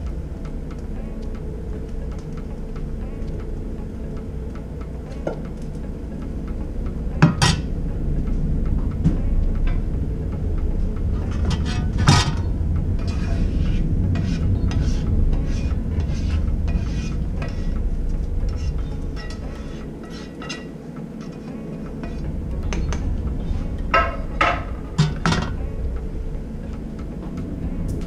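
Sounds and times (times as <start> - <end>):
steady low rumble: 0.0 - 28.0
metal utensils clinking on pot: 7.2 - 7.7, 11.3 - 17.8, 18.5 - 23.1, 23.8 - 25.6.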